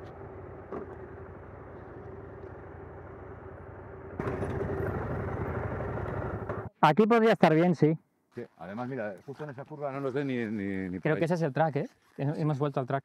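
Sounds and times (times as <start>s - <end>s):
motorcycle engine running: 0.0s - 6.7s.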